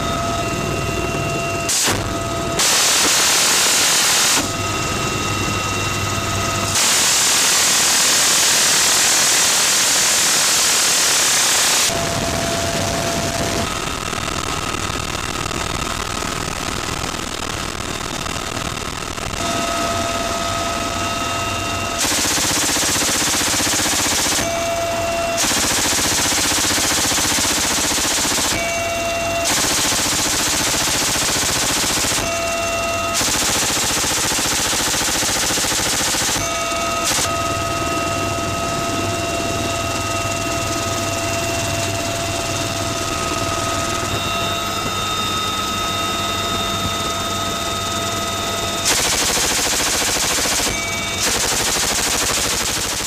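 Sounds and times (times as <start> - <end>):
helicopter turbine whine and rotor: 0.0 - 53.0
machine gun firing bursts: 22.0 - 24.6, 25.4 - 28.7, 29.4 - 32.4, 33.2 - 37.3, 48.8 - 53.0.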